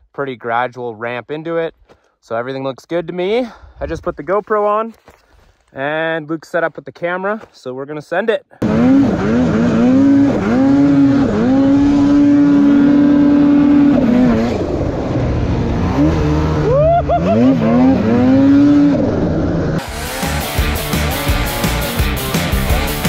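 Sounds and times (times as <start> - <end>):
snowmobile engine revving: 8.6 - 23.0
rock music: 19.6 - 23.0.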